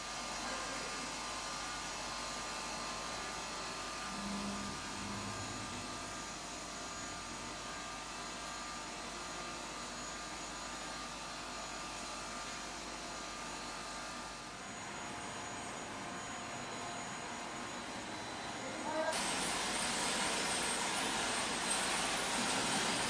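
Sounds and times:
faint machine hums: 0.0s - 22.6s
frying line machine hiss: 19.1s - 23.0s.

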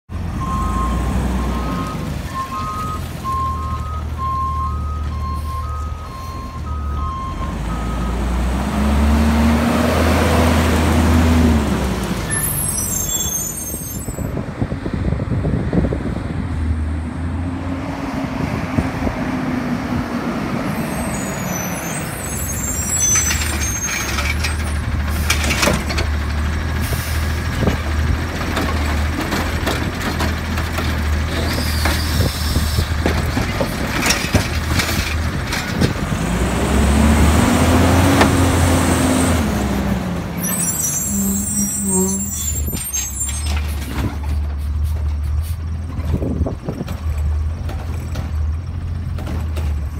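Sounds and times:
air brakes hissing: 20.7s - 23.6s, 40.4s - 43.6s
cart clanking and banging: 22.0s - 26.4s, 27.6s - 38.9s, 40.4s - 49.9s.

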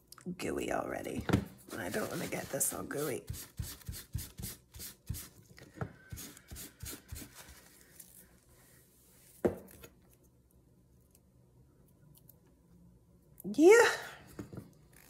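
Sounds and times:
paper towel rustling and crumpling: 1.6s - 3.2s, 7.1s - 9.4s.

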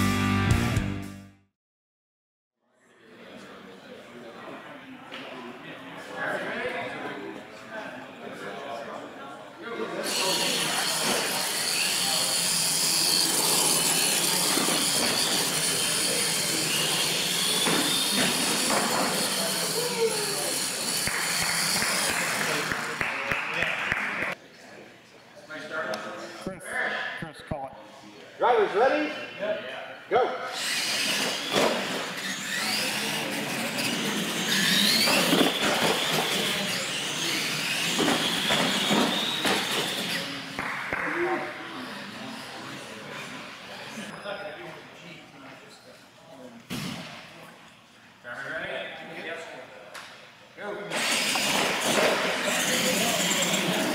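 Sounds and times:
toy truck electric motors whining: 10.0s - 22.4s, 30.5s - 40.5s, 50.9s - 53.9s.

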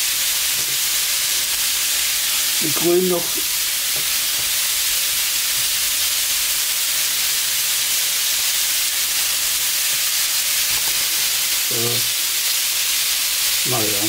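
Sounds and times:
meat sizzling on a grill: 0.0s - 14.0s.

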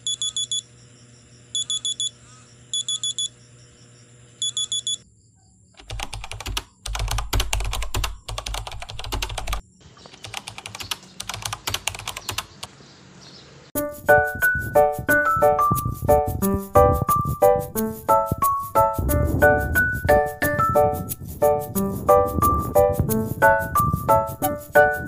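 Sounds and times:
smartphone alarm beeping: 0.0s - 0.7s, 1.6s - 3.4s, 4.4s - 5.0s
keyboard typing clicks: 5.8s - 12.7s.

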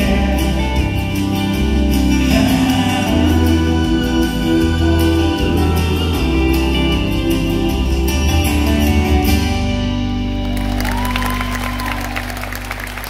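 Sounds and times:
acoustic guitars strumming: 0.0s - 13.0s
audience applause: 10.4s - 13.0s.

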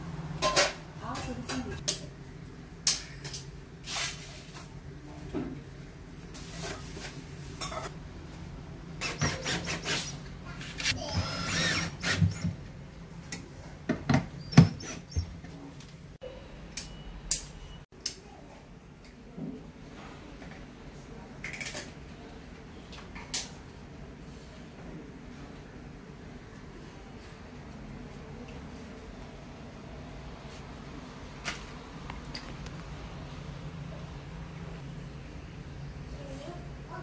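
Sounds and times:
cordless drill driving screws: 11.0s - 12.5s.

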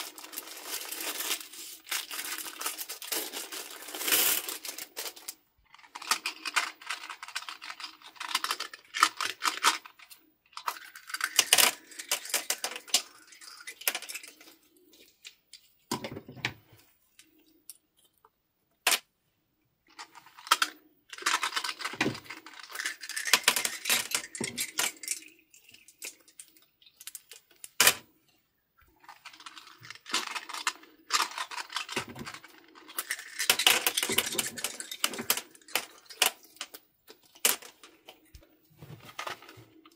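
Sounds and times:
plastic beads pouring onto plate: 0.0s - 5.4s.

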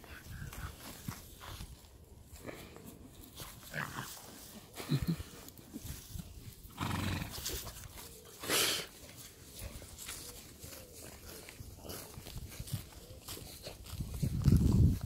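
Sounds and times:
horses cropping grass: 0.0s - 15.0s
horse snorting breath: 6.6s - 7.7s.

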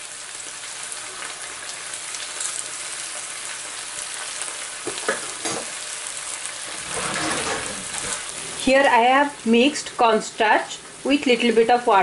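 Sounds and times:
vegetables sizzling in a frying pan: 0.0s - 12.0s.

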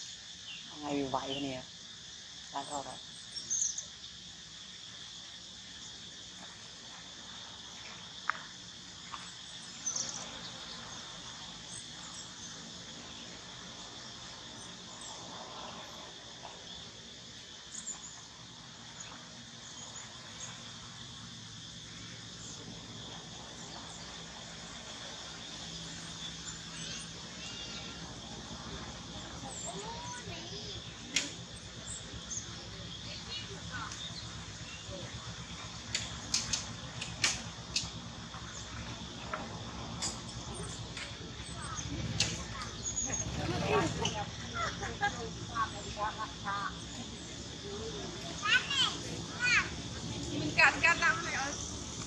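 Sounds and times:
insects droning: 0.0s - 52.0s
sharp click: 35.9s - 37.9s.

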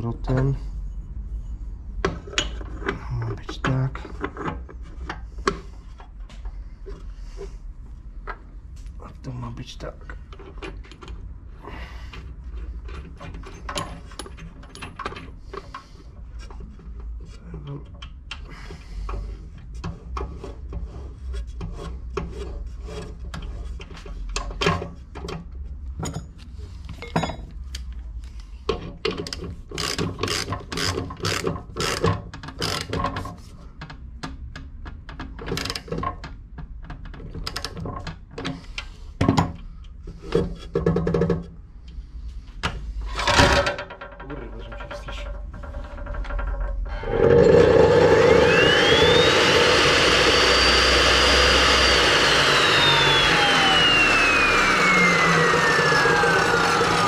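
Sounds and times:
saw motor running: 46.9s - 57.0s.

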